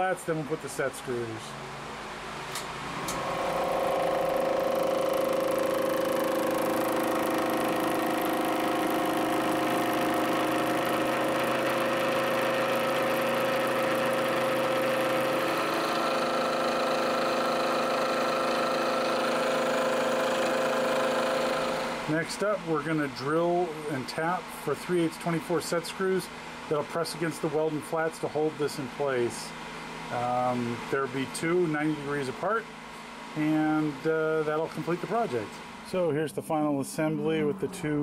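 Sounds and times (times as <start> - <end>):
milling machine cutting steel: 3.0 - 22.2.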